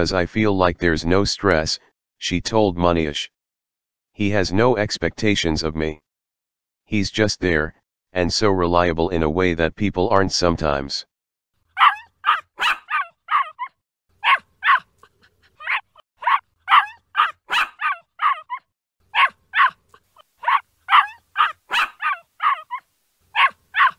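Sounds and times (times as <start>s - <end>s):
dog barking: 11.8s - 14.9s, 15.6s - 23.9s.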